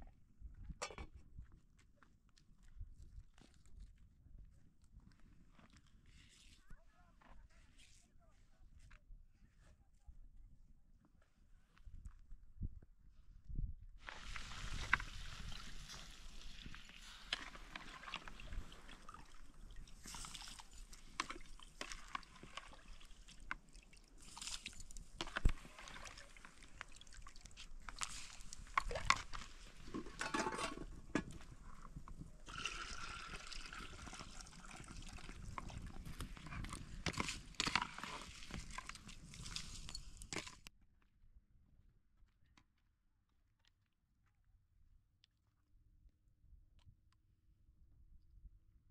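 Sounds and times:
water sloshing and dripping: 14.0 - 31.3, 32.4 - 40.6.

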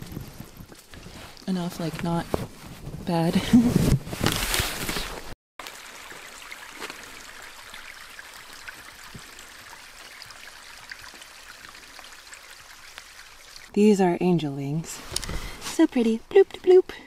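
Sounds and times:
forest stream trickling: 0.0 - 2.2, 5.6 - 16.9
dripping water ticks: 5.6 - 13.7.

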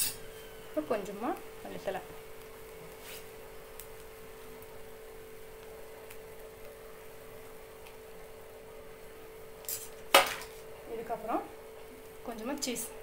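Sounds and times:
faint hiss: 0.0 - 10.0.

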